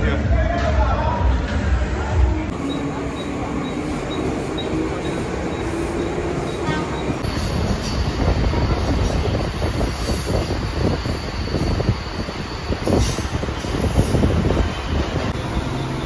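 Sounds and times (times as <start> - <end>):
train rail rumble: 0.0 - 16.0.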